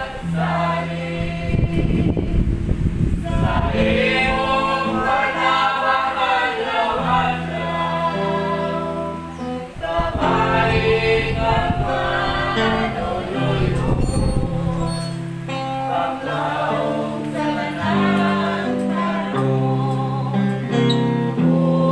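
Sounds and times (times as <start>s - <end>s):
group singing a religious song: 0.0s - 21.9s.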